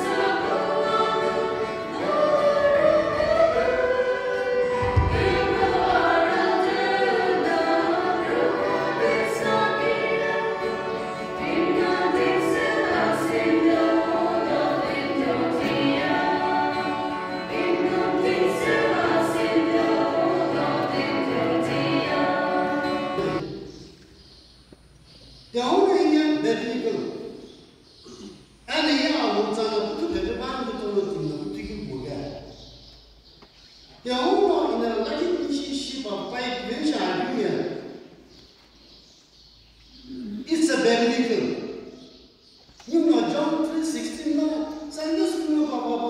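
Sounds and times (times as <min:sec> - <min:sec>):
women's choir singing a hymn: 0:00.0 - 0:23.8.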